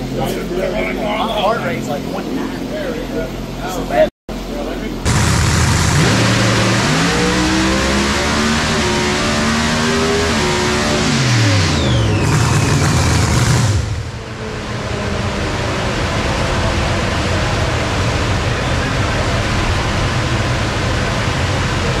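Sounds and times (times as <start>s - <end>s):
falling whine: 4.8s - 22.0s
steady rushing noise: 4.9s - 22.0s
supercharged engine revving: 5.0s - 22.0s.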